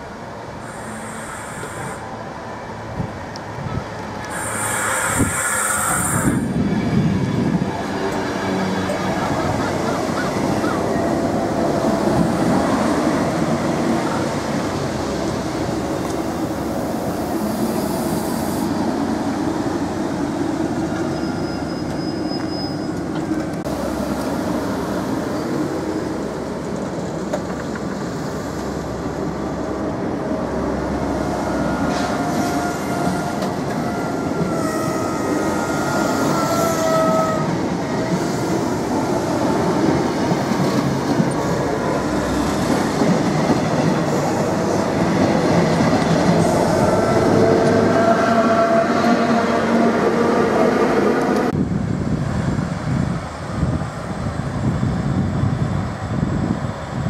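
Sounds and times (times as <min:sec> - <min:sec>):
train wheels rumbling on track: 0:00.0 - 0:57.0
wheel squeals: 0:20.9 - 0:23.3.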